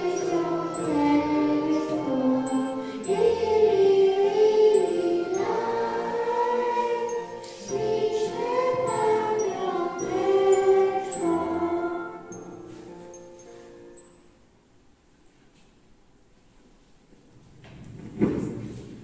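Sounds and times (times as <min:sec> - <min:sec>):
children singing into a microphone: 0:00.0 - 0:12.4.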